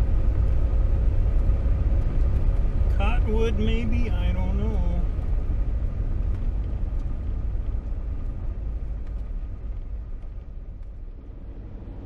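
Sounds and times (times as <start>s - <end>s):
diesel truck driving on gravel: 0.0s - 12.0s.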